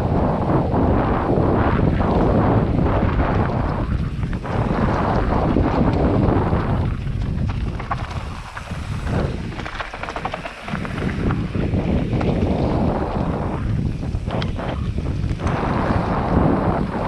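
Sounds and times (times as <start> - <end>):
wind buffeting microphone: 0.0 - 17.0
rattling clicks of stones and bike: 1.6 - 17.0
tyres crunching on gravel: 3.7 - 13.3.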